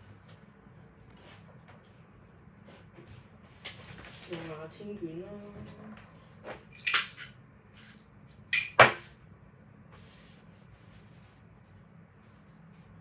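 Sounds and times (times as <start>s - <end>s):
paper rustling: 3.5s - 4.7s.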